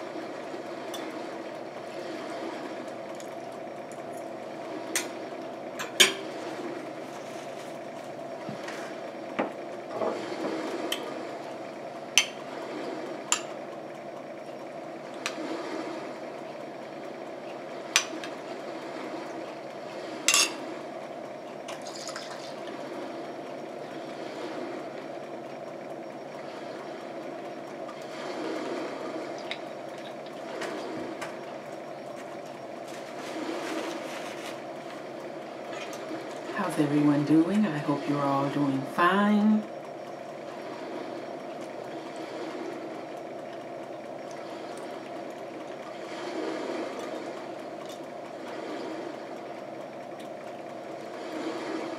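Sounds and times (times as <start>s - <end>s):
steady low hum: 0.0s - 51.9s
paper napkin rustling: 32.9s - 34.7s.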